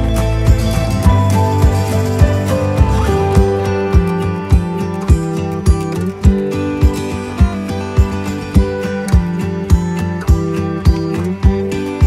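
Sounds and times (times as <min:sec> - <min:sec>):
acoustic guitar: 0:00.0 - 0:12.0
steady low beat: 0:00.5 - 0:09.9.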